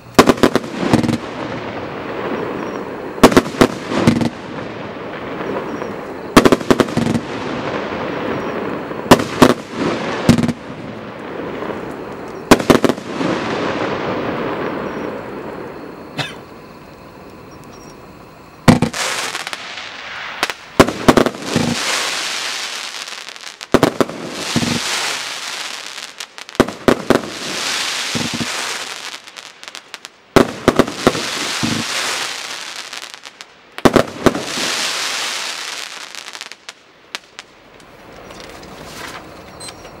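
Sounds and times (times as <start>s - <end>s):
firework bangs: 0.0s - 16.2s, 18.6s - 37.5s
small firework pops: 18.7s - 39.2s.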